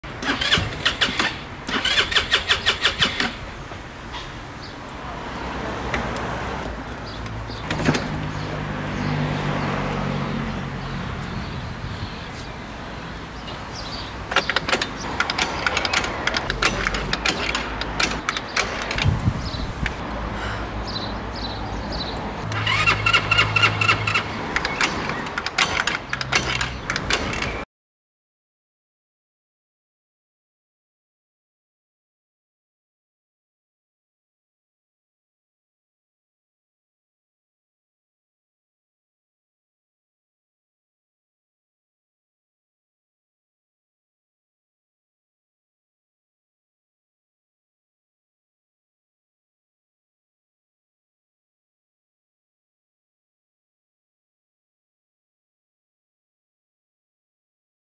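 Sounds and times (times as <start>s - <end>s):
scooter engine cranking: 0.1s - 3.5s, 13.8s - 20.0s, 22.4s - 27.6s.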